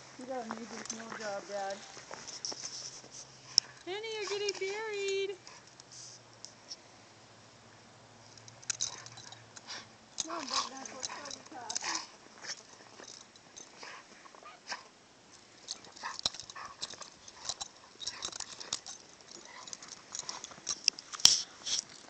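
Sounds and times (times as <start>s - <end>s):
scuffling in crackling snow: 0.0s - 6.2s
dogs vocalising: 8.8s - 14.9s, 15.6s - 21.9s.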